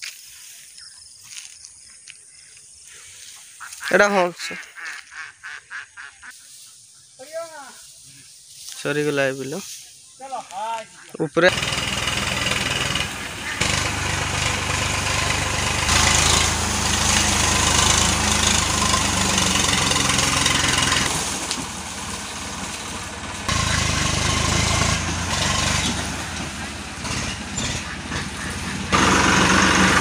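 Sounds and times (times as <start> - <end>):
diesel tractor engine running: 11.4 - 30.0.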